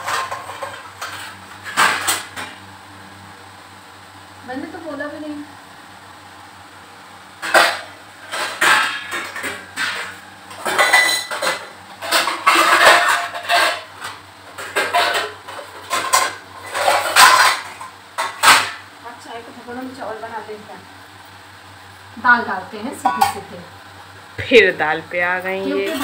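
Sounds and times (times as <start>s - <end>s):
steel pots and utensils clattering: 0.0s - 2.6s, 7.4s - 18.8s, 23.0s - 23.5s, 25.8s - 26.0s.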